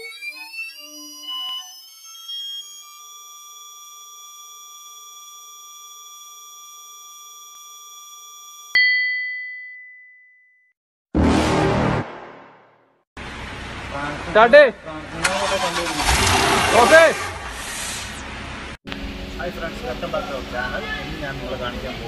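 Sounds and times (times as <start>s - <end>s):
steady high electronic tone: 0.0s - 3.6s
loud hit with ringing ding: 8.8s - 10.1s.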